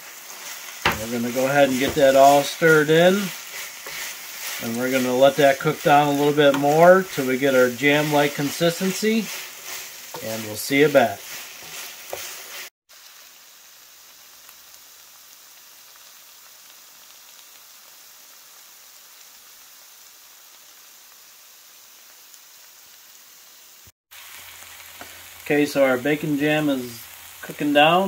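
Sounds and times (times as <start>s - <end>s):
crackling sizzle in a frying pan: 0.0s - 28.0s
spatula scraping a pan: 0.3s - 12.7s.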